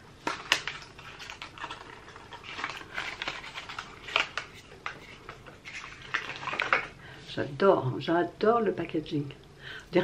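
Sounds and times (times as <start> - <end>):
plastic packaging clicks and crinkles: 0.2 - 7.0.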